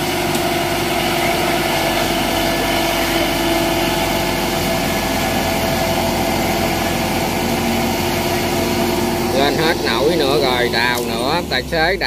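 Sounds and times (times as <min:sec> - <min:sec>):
diesel engine under load: 0:00.0 - 0:12.0.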